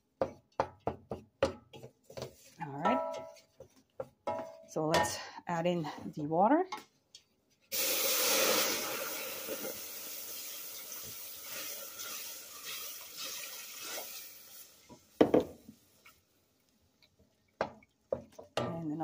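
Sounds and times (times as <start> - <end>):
water hissing in hot pot: 7.7 - 15.2.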